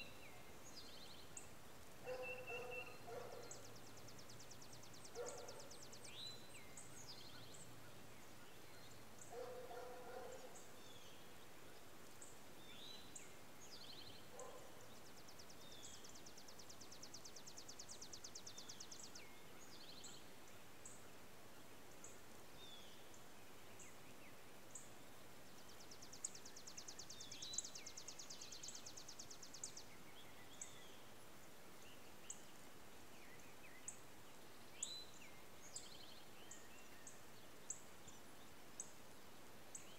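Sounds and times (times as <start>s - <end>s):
background hiss: 0.0s - 39.9s
faint birdsong trills: 0.0s - 39.9s.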